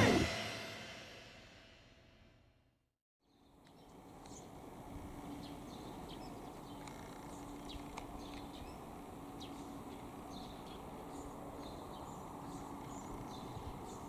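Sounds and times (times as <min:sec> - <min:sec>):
low outdoor background noise: 0:03.2 - 0:14.0
birds chirping: 0:03.4 - 0:14.0.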